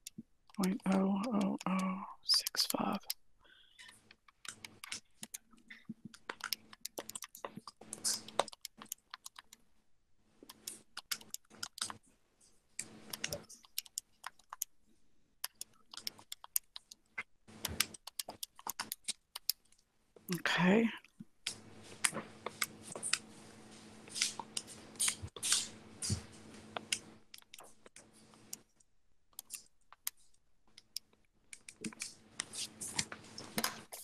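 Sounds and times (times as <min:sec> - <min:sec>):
calculator buttons clicking: 0:00.0 - 0:03.2, 0:06.1 - 0:09.6, 0:10.5 - 0:12.0, 0:13.1 - 0:14.7, 0:15.4 - 0:16.9, 0:17.6 - 0:19.6, 0:26.8 - 0:28.6.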